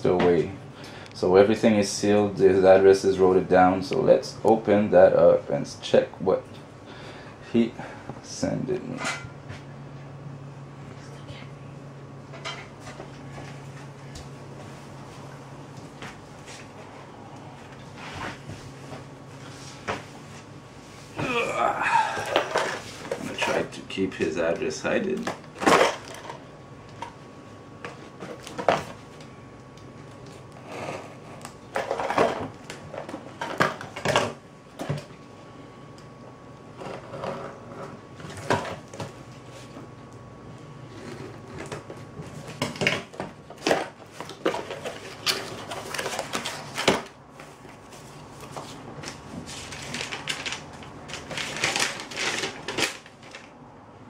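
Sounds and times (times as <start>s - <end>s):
paper rustling: 44.5s - 53.5s.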